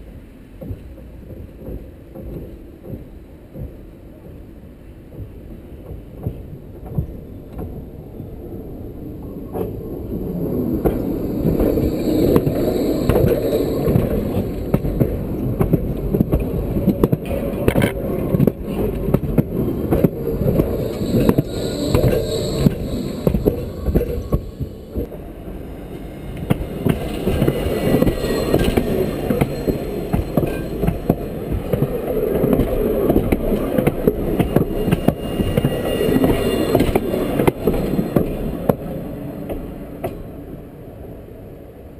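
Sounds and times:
tram wheels clattering on rails: 0.0s - 40.6s
faint high whine: 9.3s - 15.6s, 19.6s - 40.0s.

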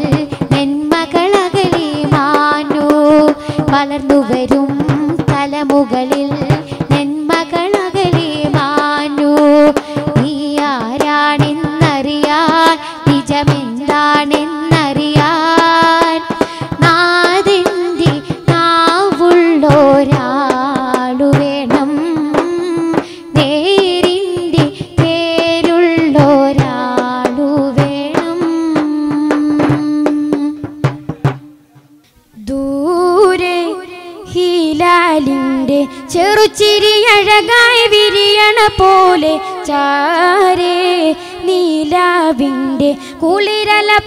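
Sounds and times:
wavering melody with percussion: 0.0s - 32.1s.

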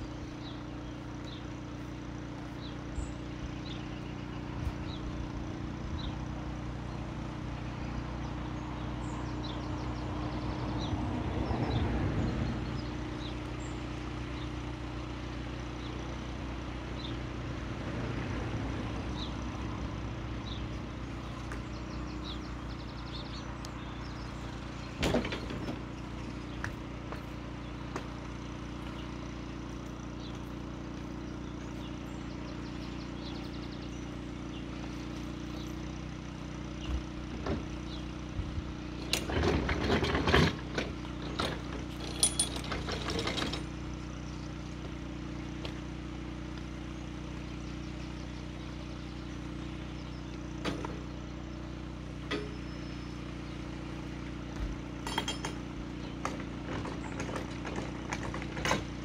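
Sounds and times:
diesel engine idling: 0.0s - 59.0s
metallic clanking and clicking: 39.0s - 43.9s, 52.2s - 52.9s, 55.0s - 59.0s.

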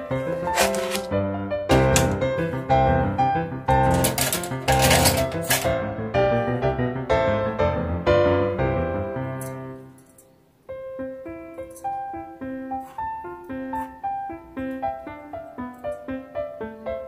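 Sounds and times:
piano melody: 0.0s - 17.0s.

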